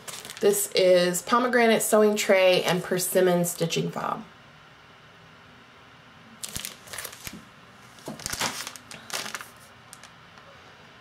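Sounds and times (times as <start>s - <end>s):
plastic sleeves crinkling: 0.0s - 0.7s, 6.4s - 10.2s.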